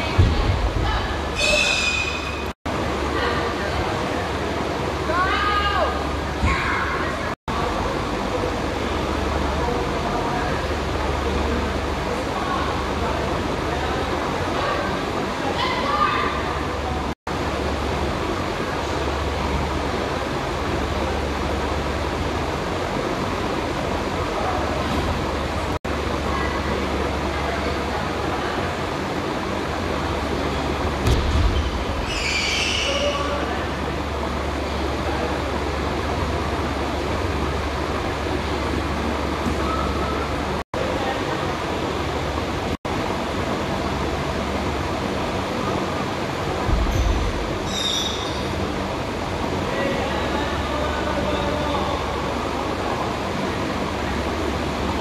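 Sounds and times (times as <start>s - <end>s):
gym hall background noise: 0.0s - 55.0s
low thump: 0.2s - 0.9s, 31.0s - 31.9s
brief high squeak: 1.4s - 2.5s, 32.0s - 33.3s, 46.9s - 48.5s.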